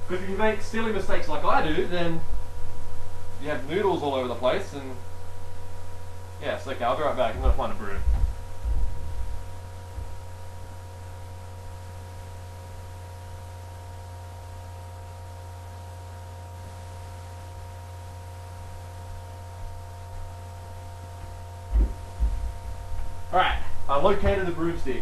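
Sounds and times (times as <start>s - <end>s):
low electrical hum: 0.0s - 25.0s
soft knocks: 21.2s - 23.1s
sharp thump: 21.7s - 23.1s.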